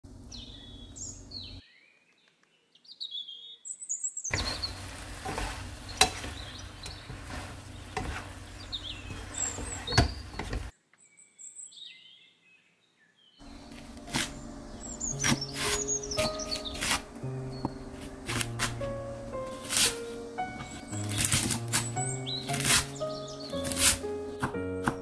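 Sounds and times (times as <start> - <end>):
food sizzling in a pan: 4.3 - 10.7
short bird-like chirps: 14.3 - 18.2.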